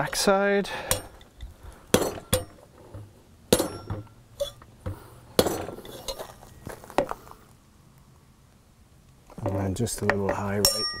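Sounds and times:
metal-on-metal taps: 0.9s - 6.2s, 9.4s - 11.0s.

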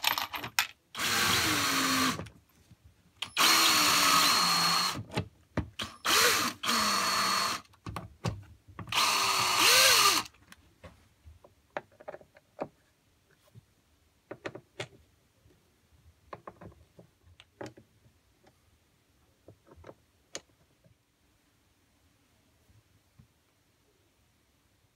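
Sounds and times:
cordless drill driving screws: 1.0s - 2.2s, 3.2s - 5.1s, 5.8s - 7.7s, 8.9s - 10.3s.

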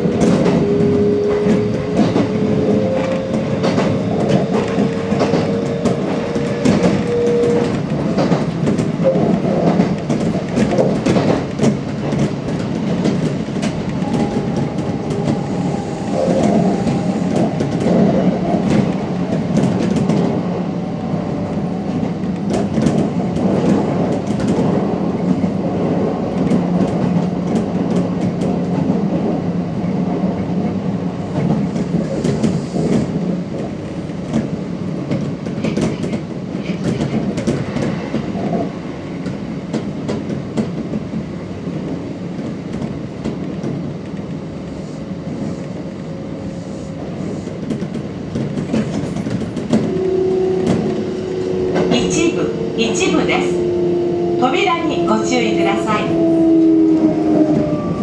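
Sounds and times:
train rumbling on track: 0.0s - 58.0s
train motor whine: 13.9s - 20.2s, 49.6s - 58.0s
faint high tone: 14.0s - 17.3s.

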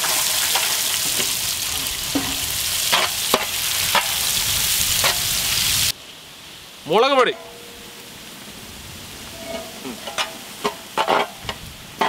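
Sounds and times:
onions sizzling in hot oil: 0.0s - 6.6s.

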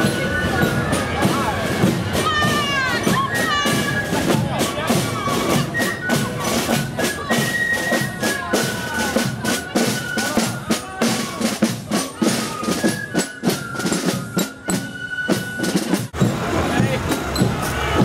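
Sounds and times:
flutes playing high melody: 0.0s - 18.0s
snare drum strokes: 0.0s - 18.0s
bass drum beat: 16.2s - 18.0s.

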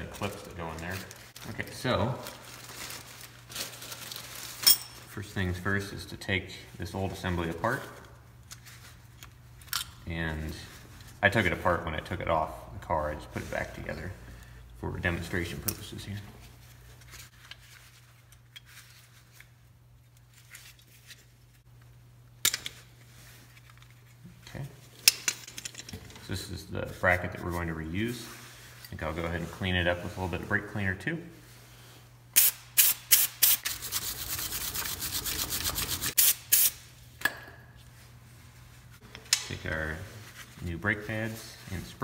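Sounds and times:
sharp metal clink: 4.6s - 5.0s
scratchy rubbing: 33.6s - 36.2s.

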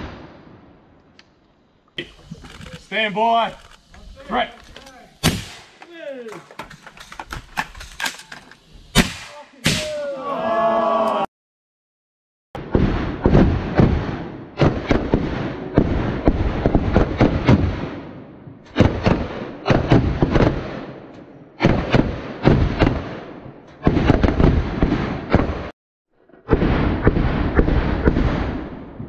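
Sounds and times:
rapid overlapping gunfire: 18.8s - 20.9s.

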